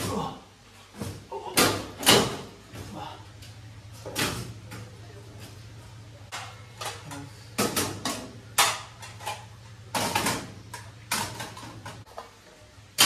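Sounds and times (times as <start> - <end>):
dishes clattering: 6.3 - 12.4.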